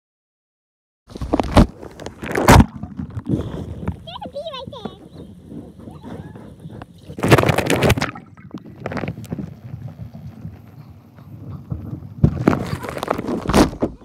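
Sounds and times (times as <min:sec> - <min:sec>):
muffled underwater rumble: 0:01.4 - 0:14.0
loud underwater rushing bursts: 0:07.1 - 0:09.1.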